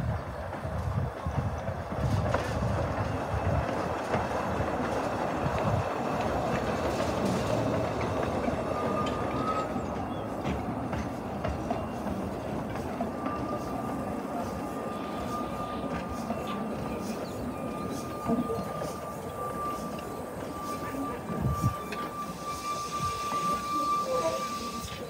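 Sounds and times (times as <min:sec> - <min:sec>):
train carriages rumbling: 0:00.0 - 0:25.0
faint wheel squeal: 0:06.9 - 0:25.0.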